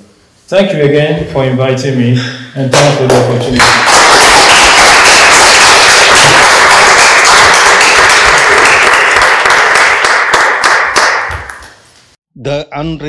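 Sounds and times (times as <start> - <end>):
audience applauding: 3.1 - 11.8.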